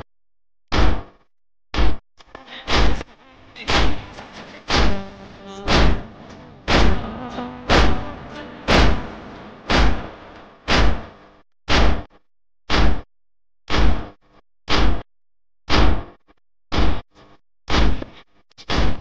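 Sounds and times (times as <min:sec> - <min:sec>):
chest-beating slaps: 0:04.7 - 0:11.1.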